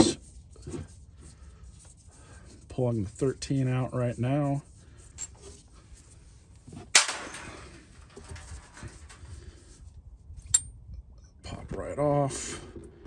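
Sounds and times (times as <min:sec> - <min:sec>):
faint clicks and scraping: 0:04.8 - 0:11.4.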